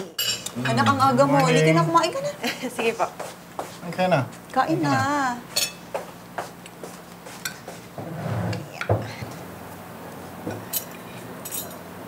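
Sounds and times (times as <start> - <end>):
cutlery clinking on plates: 0.2 - 0.5, 5.5 - 5.8, 10.5 - 11.9.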